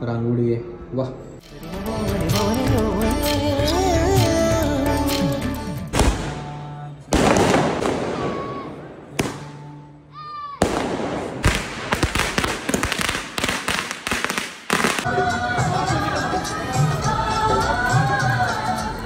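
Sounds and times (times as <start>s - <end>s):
firecrackers popping: 5.9s - 6.5s, 7.1s - 9.7s, 10.6s - 15.1s
fireworks bangs: 5.9s - 9.8s, 10.6s - 15.1s
fireworks crackle: 10.6s - 15.1s.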